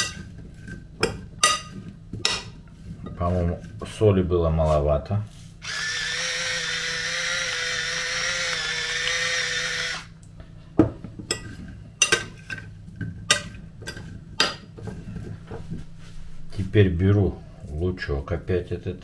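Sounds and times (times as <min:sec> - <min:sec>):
electric salt mill whirring: 0:05.6 - 0:10.2.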